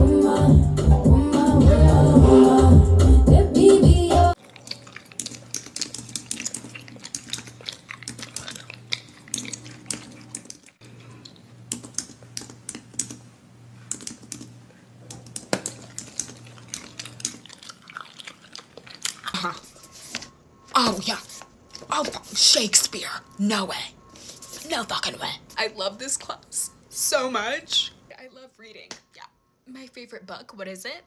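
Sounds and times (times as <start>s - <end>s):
rapid typing clicks: 13.9s - 14.5s.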